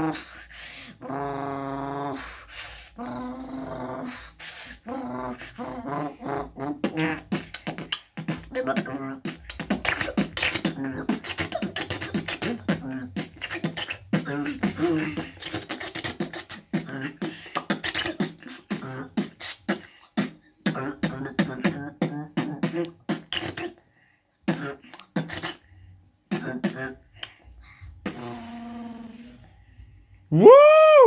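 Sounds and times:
hummed vocal tones: 0:00.0 - 0:23.8, 0:24.4 - 0:31.0
beatboxing drum hits: 0:06.8 - 0:23.7, 0:27.9 - 0:28.6.

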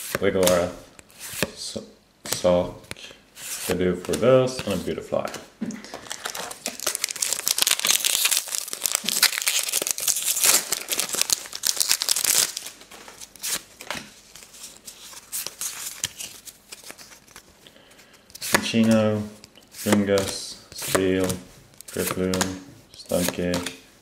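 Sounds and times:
foil wrapper tearing and crinkling: 0:06.0 - 0:12.8.

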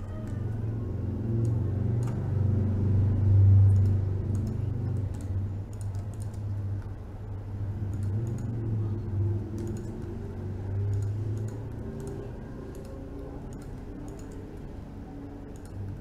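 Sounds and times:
low steady rumble: 0:00.0 - 0:16.0
mouse and keyboard clicks: 0:01.4 - 0:02.2, 0:03.7 - 0:06.5, 0:09.5 - 0:10.1, 0:10.9 - 0:14.6.

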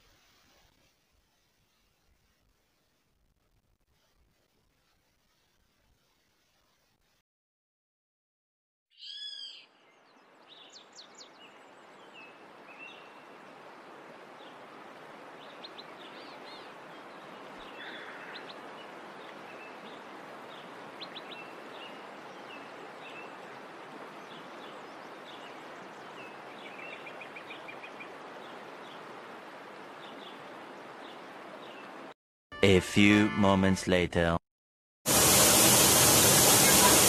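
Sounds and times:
small birds chirping: 0:08.9 - 0:13.4, 0:15.4 - 0:32.0
falling water rushing: 0:12.4 - 0:32.1, 0:35.1 - 0:37.0.

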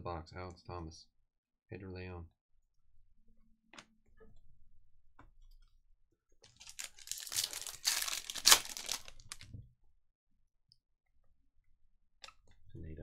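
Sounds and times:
foil pack tearing and crinkling: 0:06.5 - 0:09.4.

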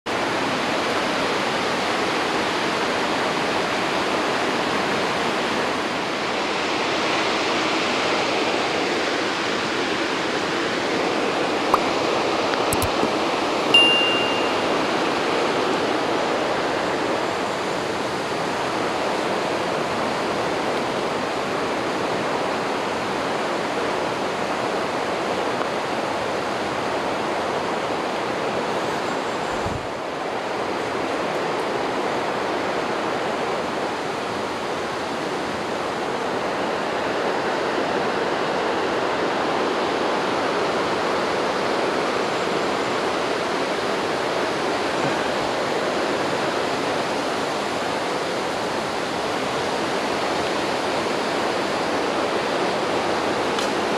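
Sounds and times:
river rushing over rapids: 0:00.1 - 0:53.9
high-pitched tone: 0:13.7 - 0:15.0.

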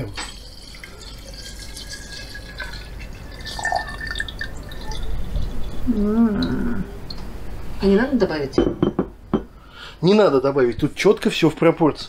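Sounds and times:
liquid pouring and splashing: 0:00.0 - 0:05.9.

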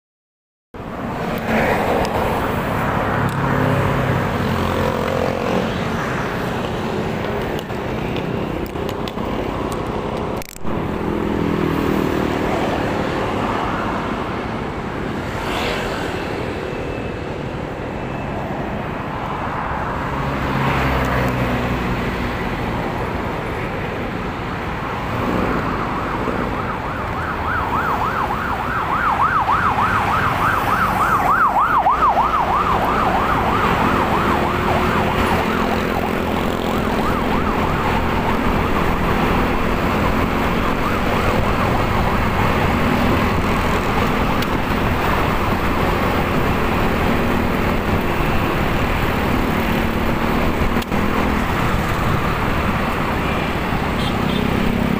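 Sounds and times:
road noise: 0:00.8 - 0:54.9
yelping siren: 0:25.6 - 0:47.2.

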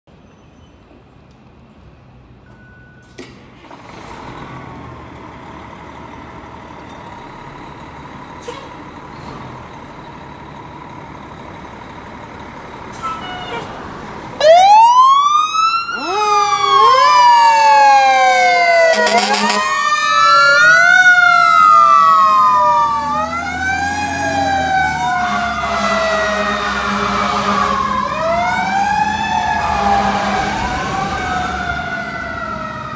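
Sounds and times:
fire engine running: 0:01.7 - 0:32.9
sirens wailing: 0:12.9 - 0:32.9
horn blast: 0:18.8 - 0:19.9, 0:25.2 - 0:28.0.

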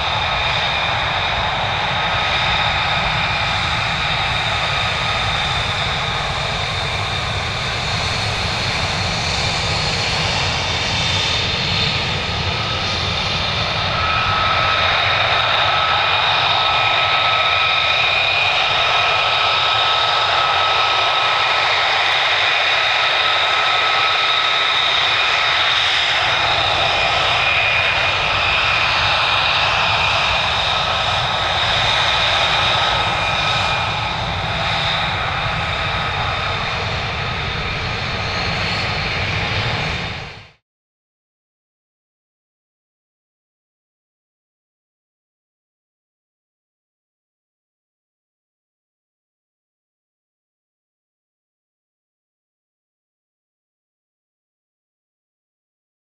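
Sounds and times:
jet engines rumbling and whining: 0:00.0 - 0:40.6.

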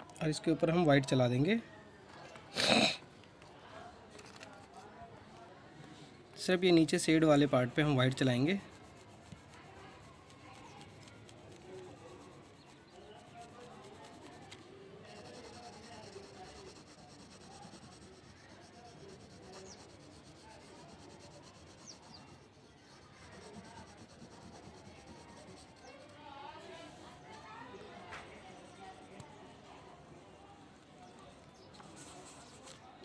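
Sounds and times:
drawing tool rubbing on paper: 0:06.9 - 0:29.2, 0:31.6 - 0:32.8.

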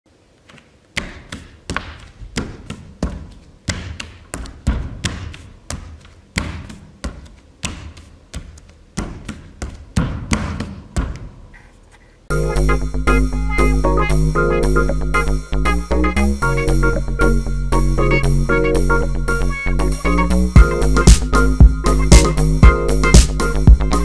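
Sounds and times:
bare feet stamping on stage floor: 0:00.4 - 0:11.5.

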